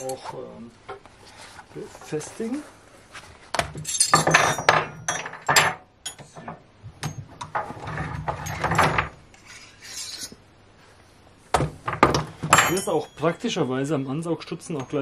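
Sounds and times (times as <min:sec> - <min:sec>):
metal tube and hose scraping: 0:09.3 - 0:10.4.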